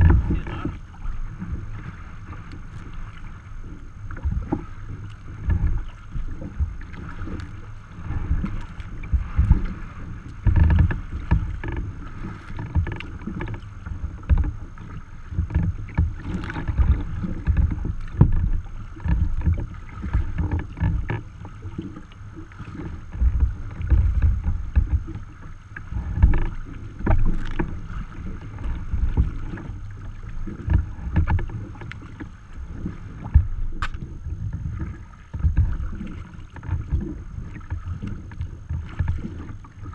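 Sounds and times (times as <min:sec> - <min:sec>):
wind buffeting microphone: 0:00.0 - 0:21.8
water slapping against kayak hull: 0:00.0 - 0:39.9.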